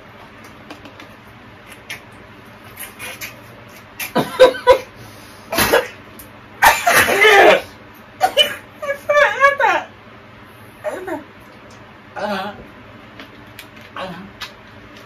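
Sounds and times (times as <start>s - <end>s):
people coughing and spluttering: 5.5s - 6.0s, 6.6s - 7.6s.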